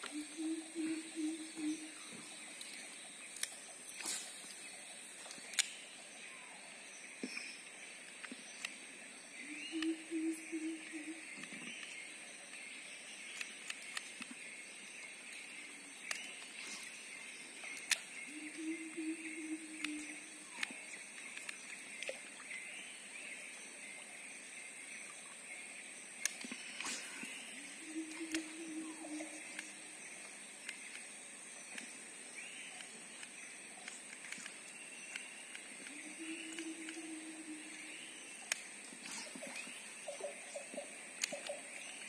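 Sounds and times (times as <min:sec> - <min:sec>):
insects droning: 0:00.0 - 0:42.0
faint clicks: 0:10.8 - 0:17.0, 0:17.6 - 0:18.7, 0:19.8 - 0:22.6, 0:26.2 - 0:32.0, 0:32.6 - 0:42.0.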